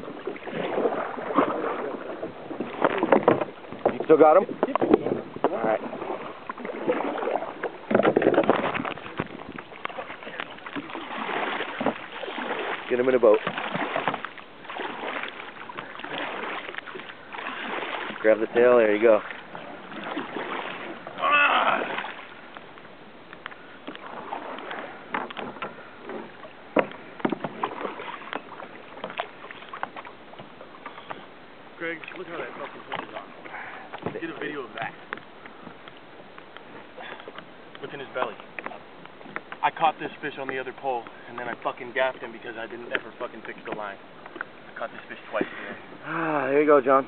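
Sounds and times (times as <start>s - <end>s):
water splashing around kayak: 0.0s - 47.0s
knocks against kayak hull: 2.6s - 6.2s, 7.6s - 17.1s, 23.4s - 31.3s, 33.9s - 34.3s
person calling out: 21.2s - 22.0s.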